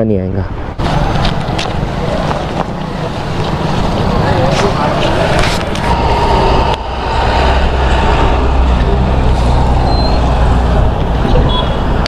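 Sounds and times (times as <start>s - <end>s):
road noise: 0.0s - 12.0s
heavy vehicle engine rumble: 0.6s - 12.0s.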